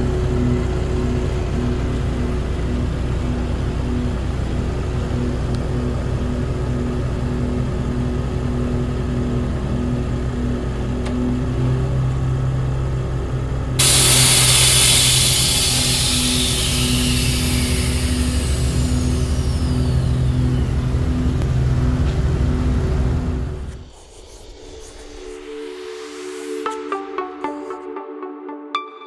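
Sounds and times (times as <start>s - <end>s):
air hissing from suspension: 13.8s - 21.4s
pickup engine running: 13.8s - 23.7s.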